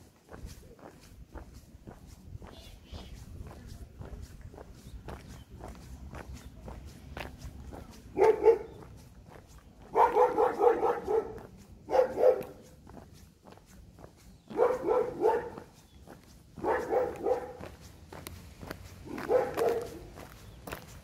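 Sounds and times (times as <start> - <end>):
dog barking: 8.1 - 8.9, 9.9 - 12.7, 14.5 - 15.7, 16.6 - 17.8, 19.0 - 20.2.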